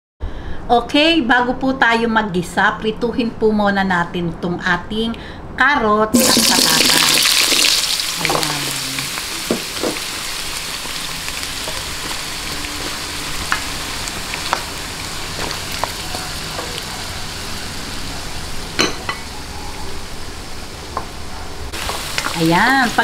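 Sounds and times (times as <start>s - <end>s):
vegetables sizzling in oil: 6.2s - 23.0s.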